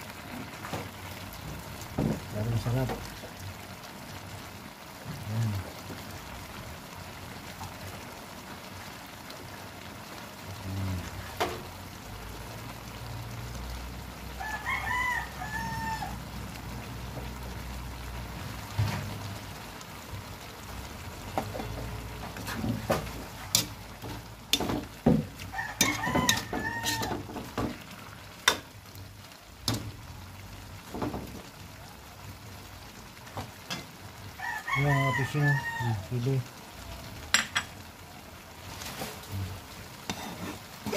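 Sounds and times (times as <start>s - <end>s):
rooster crowing: 14.3s - 16.3s, 25.4s - 27.5s, 34.3s - 36.1s.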